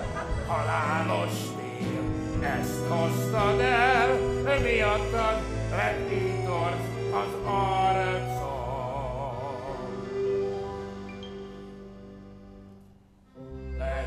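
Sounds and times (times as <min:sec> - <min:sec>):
man singing operatically: 0:00.0 - 0:10.5, 0:13.7 - 0:14.0
instrumental accompaniment: 0:00.0 - 0:14.0.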